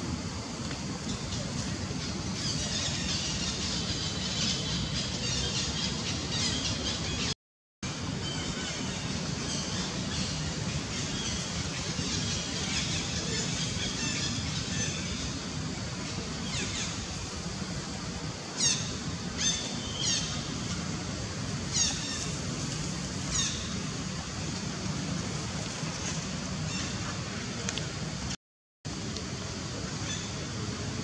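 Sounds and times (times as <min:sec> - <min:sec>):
low background noise: 0:00.0 - 0:31.0.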